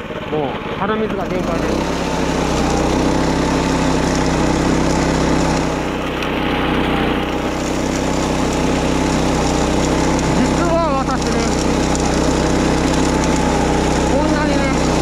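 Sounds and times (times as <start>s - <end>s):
lawn mower engine running: 0.0s - 15.0s.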